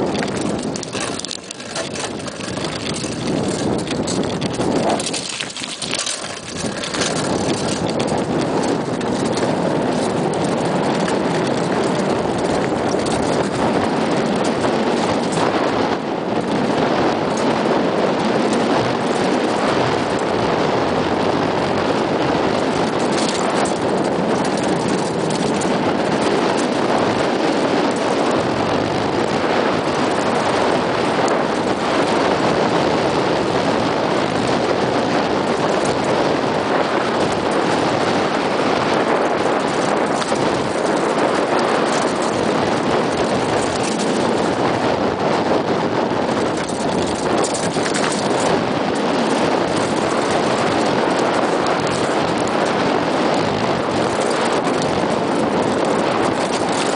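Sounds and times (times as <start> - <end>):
bike knocking over stones: 0.0 - 15.5, 22.8 - 26.6, 39.0 - 44.5, 46.4 - 48.5
bike tyres on gravel: 0.0 - 56.9
wind on microphone: 0.0 - 56.9.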